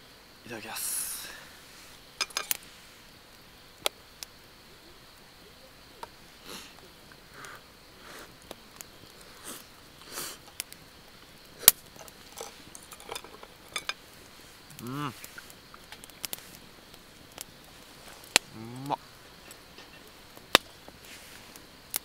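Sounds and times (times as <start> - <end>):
wood fire crackling: 0.0 - 22.0
sharp pops from fire: 1.8 - 22.0
soft rustling puffs: 20.9 - 21.7.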